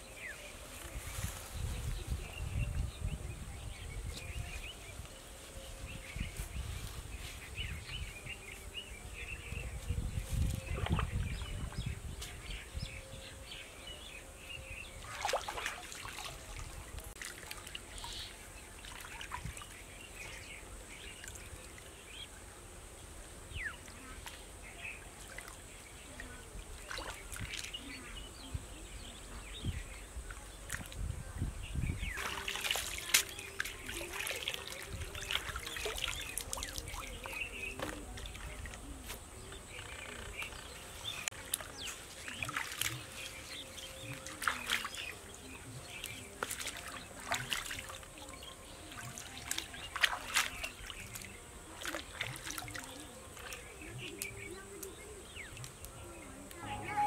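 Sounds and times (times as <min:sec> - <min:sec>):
stream water splashing: 0:14.9 - 0:22.4, 0:23.5 - 0:28.2, 0:32.0 - 0:55.9.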